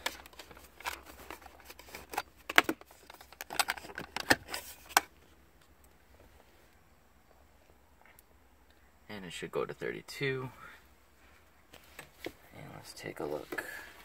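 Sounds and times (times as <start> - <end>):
plastic connector clicks and rattles: 0.0 - 5.1.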